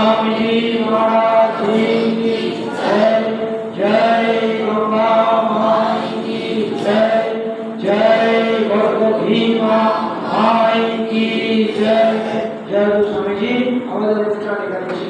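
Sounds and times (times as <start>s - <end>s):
group of voices singing: 0.0s - 12.8s
person chanting into microphone: 0.0s - 13.8s.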